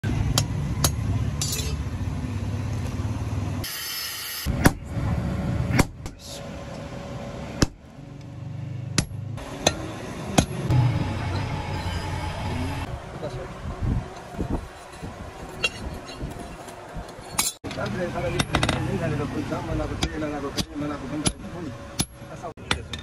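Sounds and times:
low workshop hum: 0:00.0 - 0:23.0
hammer striking steel on anvil: 0:10.4 - 0:11.5, 0:20.0 - 0:23.0.

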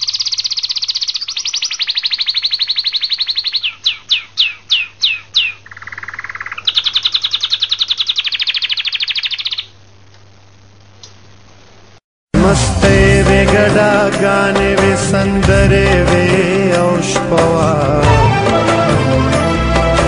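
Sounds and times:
canary singing trills: 0:00.0 - 0:09.8.

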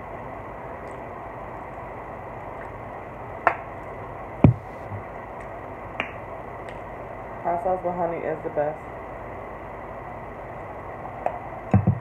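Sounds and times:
steady background hum: 0:00.0 - 0:12.0
sharp knocks: 0:04.4 - 0:04.7.

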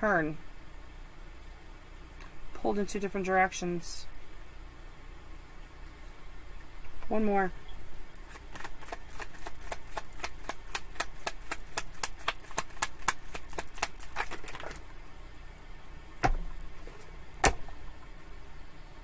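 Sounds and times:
cards being shuffled: 0:08.2 - 0:14.9.

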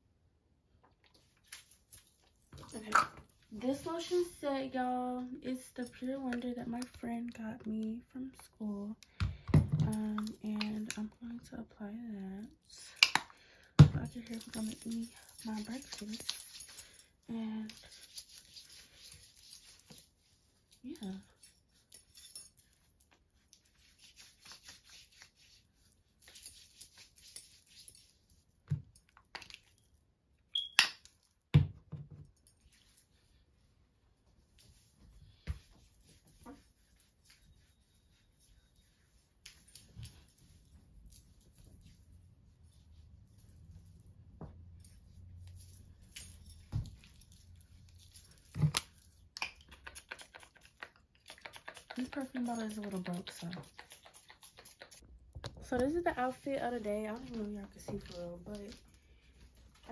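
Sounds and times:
hands rubbing lotion into skin: 0:15.4 - 0:16.8, 0:17.7 - 0:20.7, 0:23.1 - 0:28.2, 0:46.8 - 0:55.0.

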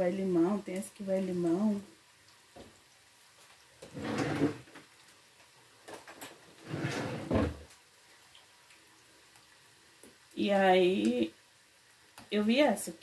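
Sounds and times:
drawer sliding open and shut: 0:03.9 - 0:04.7, 0:06.6 - 0:07.7.

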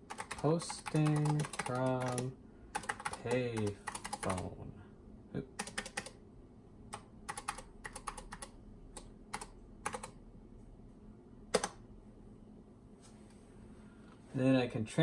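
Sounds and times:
keyboard keys clicking: 0:00.1 - 0:04.5, 0:05.6 - 0:06.2, 0:06.9 - 0:10.2, 0:11.5 - 0:11.8.

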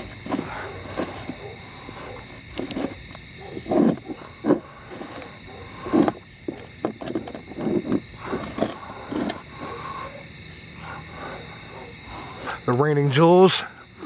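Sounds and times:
bricks scraping and knocking: 0:00.0 - 0:01.4, 0:02.5 - 0:09.4.

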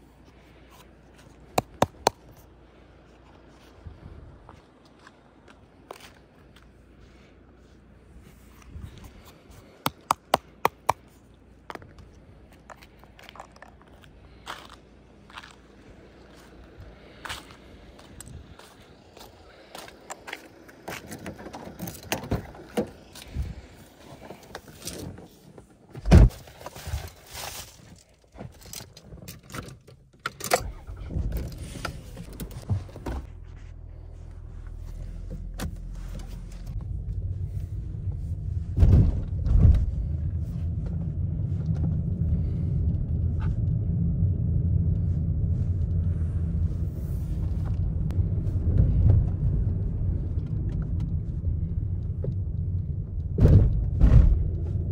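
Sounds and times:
car engine rumbling: 0:00.0 - 0:54.9
loud thump: 0:53.4 - 0:54.6.

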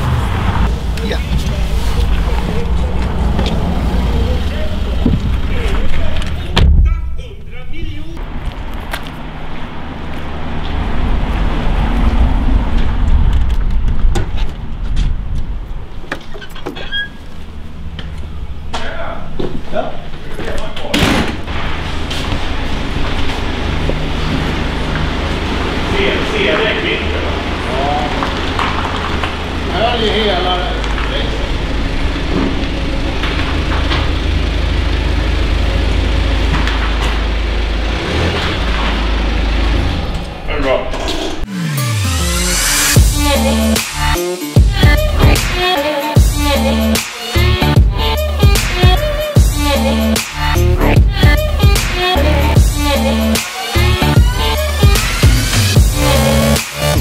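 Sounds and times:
car passing: 0:00.0 - 0:06.6, 0:08.2 - 0:16.1, 0:21.4 - 0:43.1
low mechanical rumble: 0:00.0 - 0:20.6, 0:21.3 - 0:41.5.

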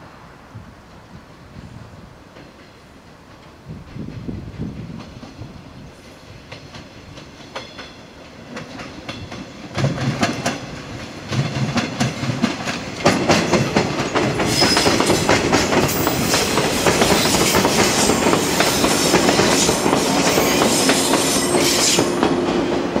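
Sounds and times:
train passing: 0:00.0 - 0:23.0
wheels clicking over rail joints: 0:06.3 - 0:23.0.

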